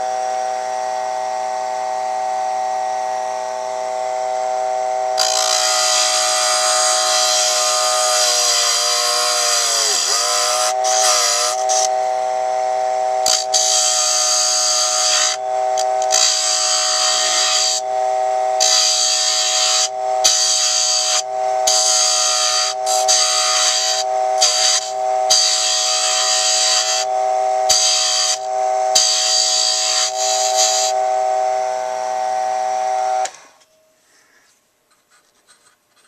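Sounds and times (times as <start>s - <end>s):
small electric motor whining: 0.0s - 33.7s
tool scraping spinning wood: 5.2s - 12.0s, 13.1s - 31.1s.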